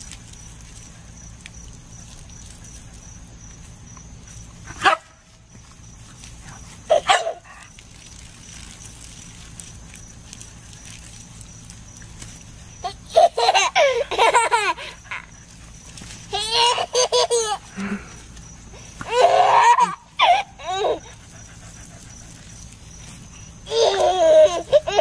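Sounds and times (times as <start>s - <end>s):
toddler giggling: 12.8s - 15.3s, 16.3s - 17.8s, 19.0s - 21.2s, 23.7s - 25.0s.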